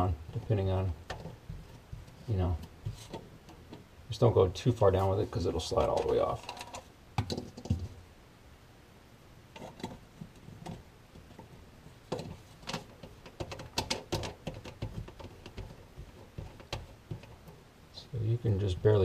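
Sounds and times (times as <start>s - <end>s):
plastic parts clicking and scraping: 0.3s - 3.8s, 5.6s - 8.0s, 9.5s - 17.6s.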